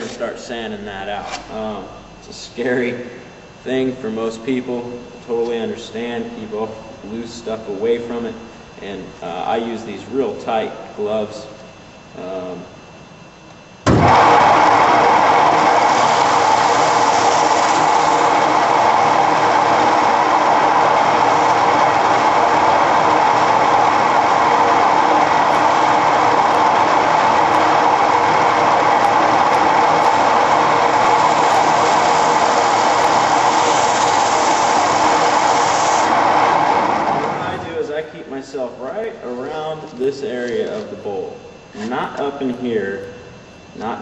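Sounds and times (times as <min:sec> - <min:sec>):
wood lathe motor running: 0:13.9 - 0:37.8
sandpaper sanding spinning bowl: 0:14.6 - 0:36.9.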